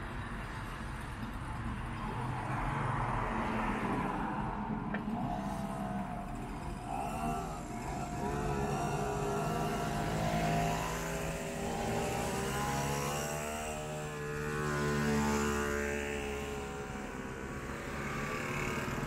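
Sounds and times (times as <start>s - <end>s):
mopeds buzzing past: 6.6s - 19.0s.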